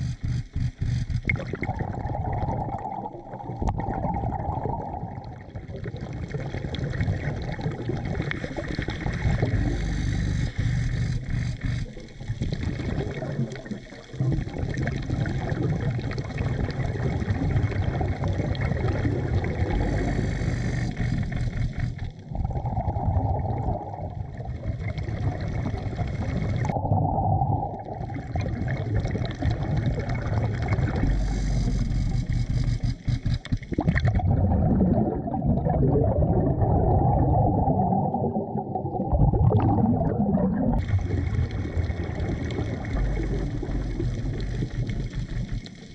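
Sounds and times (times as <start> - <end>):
gurgling exhaled bubbles: 0.0 - 45.9
underwater breathing through regulator: 8.4 - 12.8, 19.4 - 24.2, 30.5 - 35.2.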